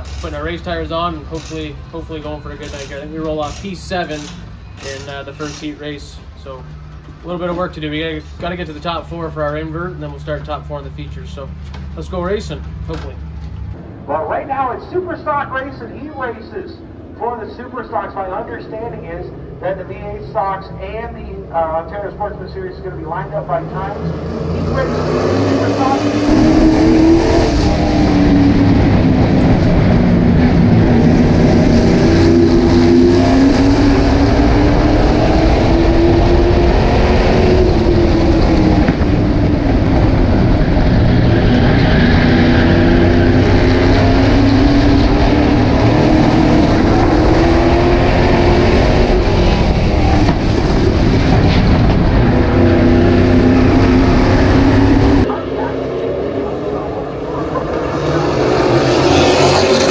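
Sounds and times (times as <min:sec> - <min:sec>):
race car engine revving: 0:07.3 - 0:59.9.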